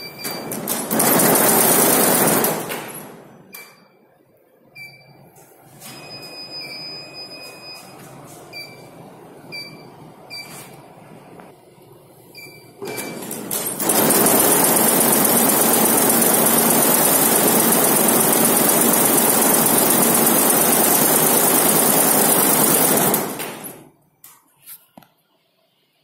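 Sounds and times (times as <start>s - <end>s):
embroidery machine clattering: 13.0s - 23.9s.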